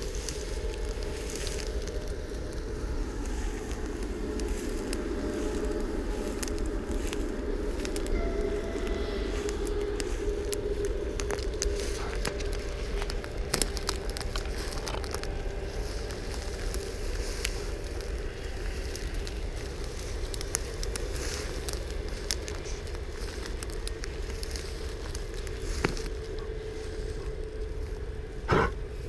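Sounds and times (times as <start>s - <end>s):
footsteps through dry grass: 0.0s - 29.0s
steady low rumble: 0.0s - 29.0s.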